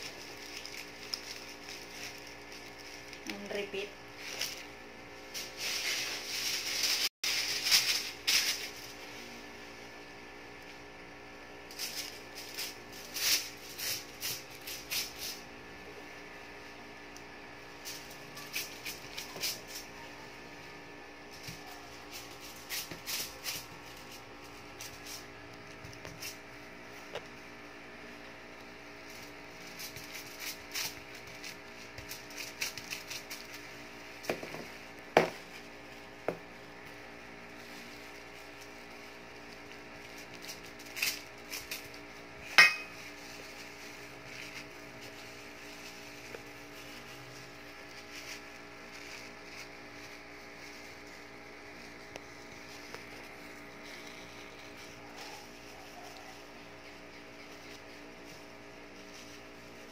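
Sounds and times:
aluminium foil rustling: 0:00.0 - 0:10.0, 0:11.5 - 0:16.7, 0:17.5 - 0:27.5, 0:28.1 - 0:59.9
steady low hum: 0:00.0 - 0:59.9.

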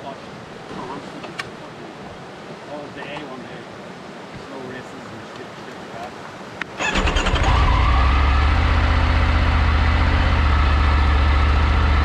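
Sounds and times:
vehicle engine starting and idling: 0:06.8 - 0:12.0.

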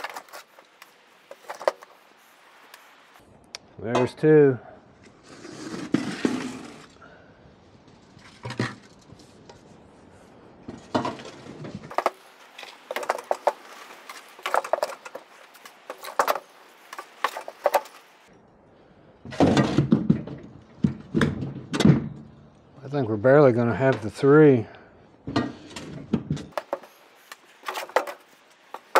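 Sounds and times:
shovel scraping metal cart: 0:05.2 - 0:07.0.

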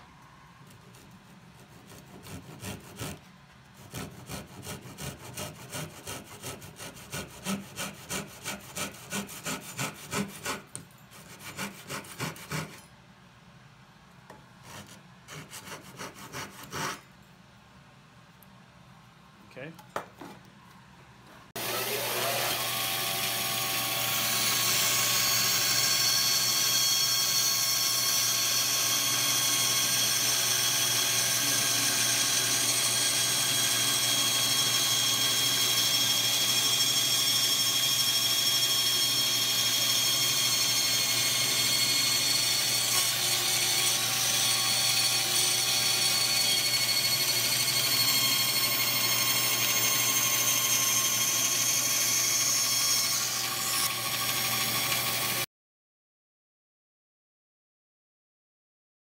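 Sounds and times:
electric motor whining: 0:21.6 - 0:27.4.

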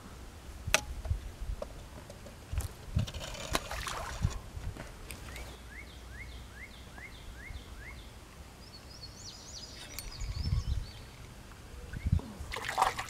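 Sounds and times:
songbirds whistling and twittering: 0:05.2 - 0:12.3.

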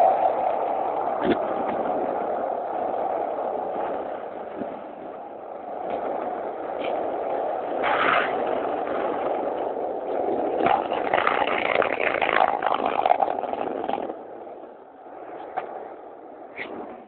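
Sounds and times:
longboard wheels rolling: 0:00.0 - 0:17.0
wheels clattering over paving stones: 0:09.3 - 0:14.2.

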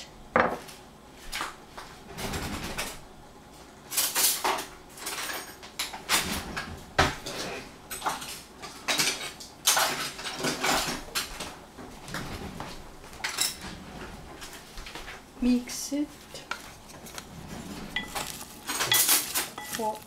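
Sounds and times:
dishes and utensils clinking: 0:07.0 - 0:11.4, 0:16.5 - 0:20.0.

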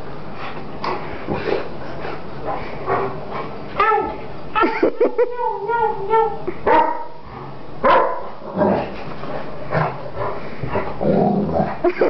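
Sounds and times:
dog barking: 0:06.7 - 0:07.2, 0:07.8 - 0:08.4
dog growling: 0:08.4 - 0:12.0.

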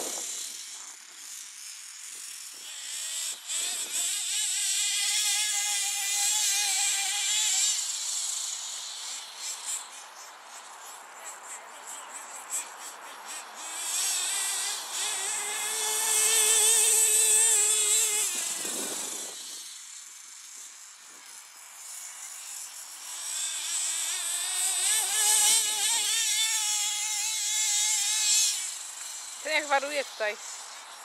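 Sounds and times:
rc car engines buzzing whine: 0:00.0 - 0:31.0.

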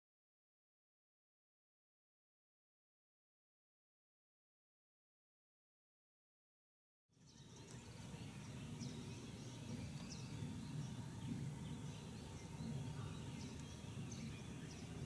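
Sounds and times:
faint bird chirps: 0:07.2 - 0:15.0.

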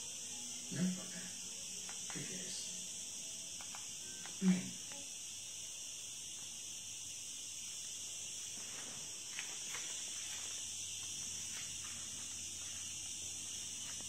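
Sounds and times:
high-pitched hiss: 0:00.0 - 0:14.0
faint clicks: 0:03.6 - 0:05.0.

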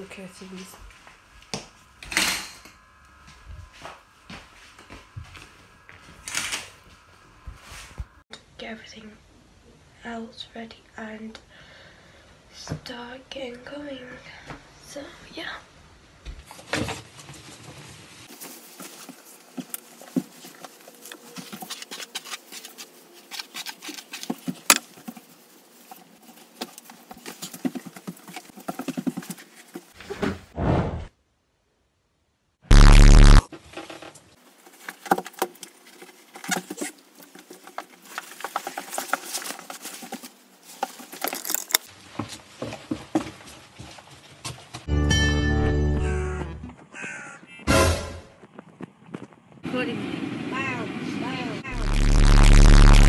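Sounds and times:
footsteps: 0:00.4 - 0:08.2
small knocks and scrapes: 0:16.4 - 0:30.5, 0:33.5 - 0:44.9.

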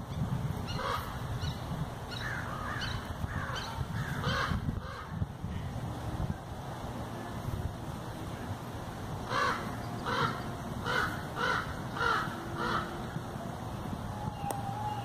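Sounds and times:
crow cawing: 0:09.3 - 0:12.9.

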